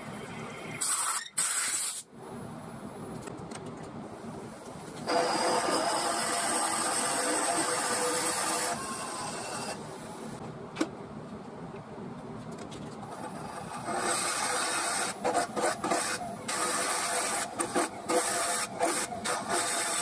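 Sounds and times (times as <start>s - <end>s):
wood lathe spinning: 5.1s - 9.8s, 13.2s - 20.0s
drill bit cutting with loud hiss: 5.1s - 9.9s, 13.8s - 20.0s.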